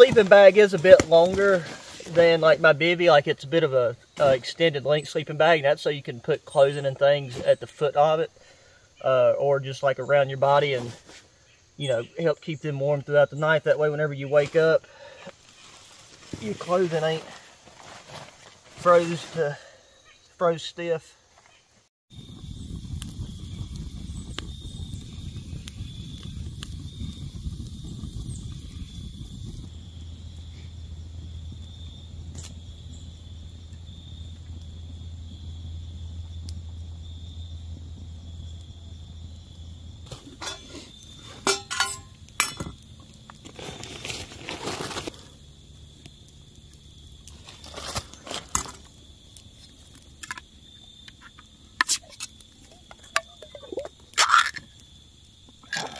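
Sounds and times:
campfire crackling: 0:00.0 - 0:21.4, 0:22.1 - 0:55.9
high insect trill: 0:00.0 - 0:55.9
camp gear clicking and knocking: 0:50.2 - 0:50.5.

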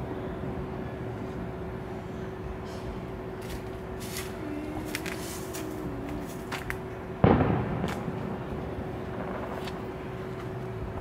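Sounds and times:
firework boom: 0:07.2 - 0:10.2.

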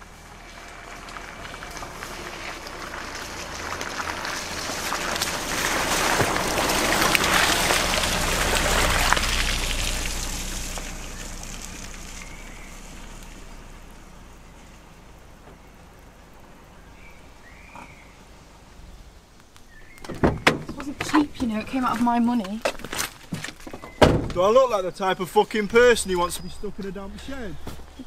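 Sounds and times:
rain pattering on water: 0:00.0 - 0:16.1.

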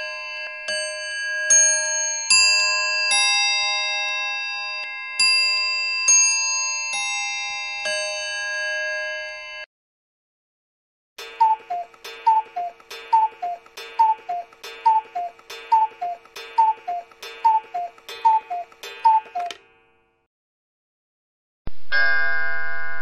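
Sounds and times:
ringing clock chime: 0:00.0 - 0:09.7
pendulum clock ticking: 0:11.2 - 0:19.7.

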